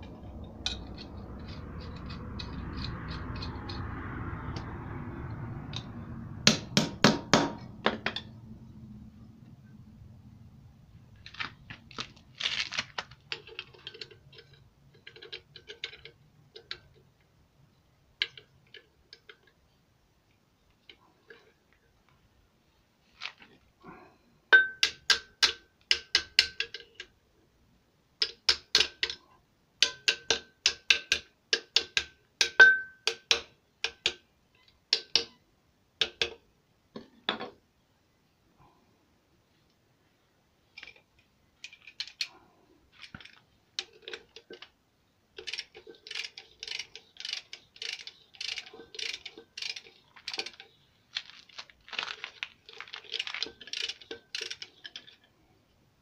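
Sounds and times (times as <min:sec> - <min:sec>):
socket ratchet clicking: 0:45.4 - 0:50.6.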